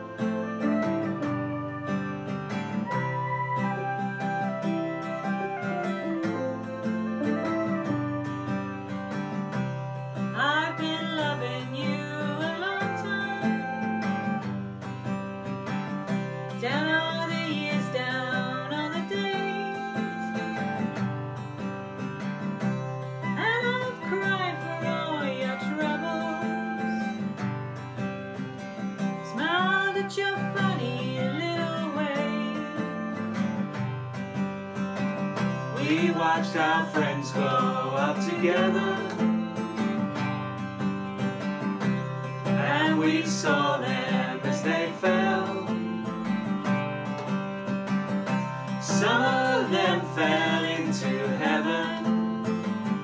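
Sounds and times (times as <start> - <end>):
acoustic guitar playing: 0.0 - 53.0
sliding wavering melody line: 2.8 - 9.1.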